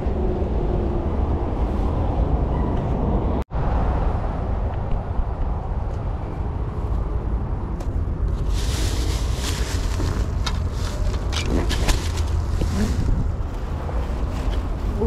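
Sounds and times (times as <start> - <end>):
footsteps through long grass: 8.3 - 15.0.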